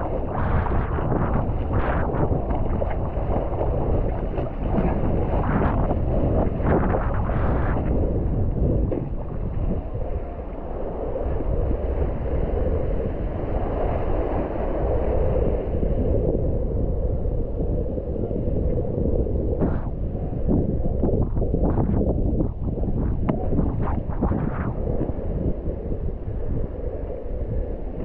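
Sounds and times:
rushing water: 0:00.0 - 0:15.8
wind buffeting microphone: 0:00.0 - 0:28.0
water splashes: 0:00.2 - 0:08.1.

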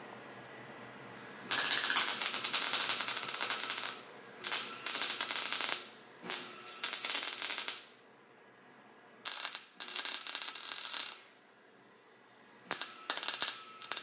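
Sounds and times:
welder arc crackling: 0:01.2 - 0:08.0, 0:09.3 - 0:11.3, 0:12.7 - 0:14.0.

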